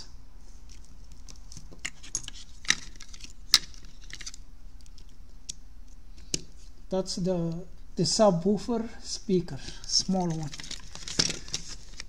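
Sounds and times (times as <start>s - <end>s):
plastic parts clicking and rattling: 0.7s - 5.2s, 9.6s - 12.0s.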